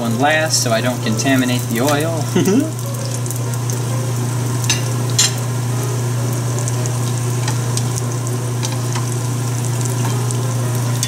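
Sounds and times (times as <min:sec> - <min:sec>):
oil sizzling and popping: 0:00.0 - 0:11.0
steady low hum: 0:00.0 - 0:11.0.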